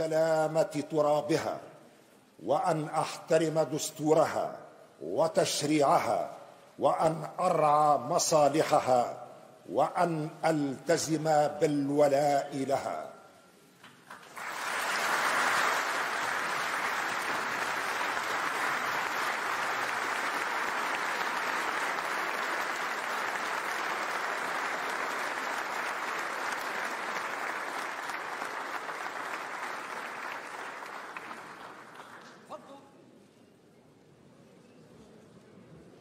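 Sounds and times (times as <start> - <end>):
large audience applauding: 14.1 - 32.4.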